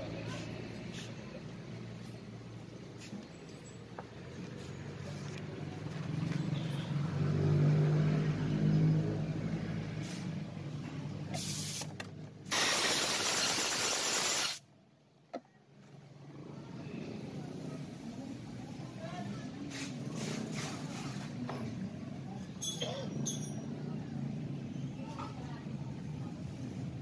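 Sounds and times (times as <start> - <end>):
pressurised hiss: 12.5 - 14.6.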